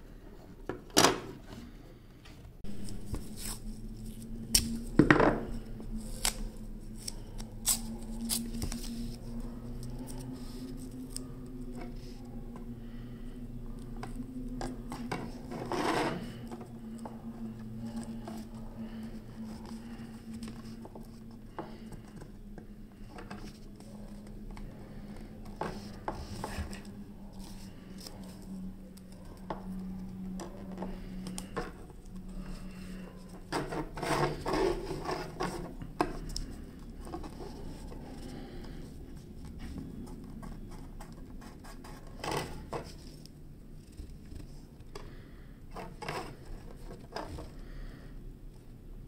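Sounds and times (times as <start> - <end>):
low steady hum: 0.0 - 49.0.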